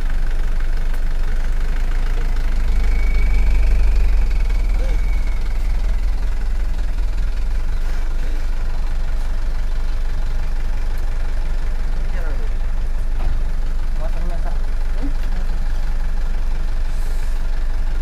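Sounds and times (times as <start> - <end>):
truck engine droning: 0.0 - 18.0.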